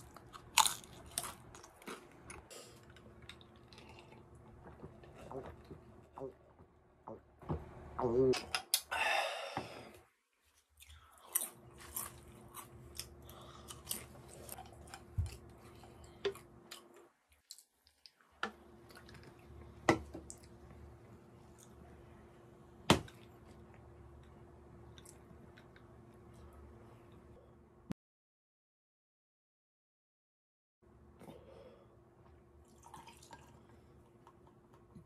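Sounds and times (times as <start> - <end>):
chewing potato chips: 0.0 - 5.7, 10.7 - 18.2.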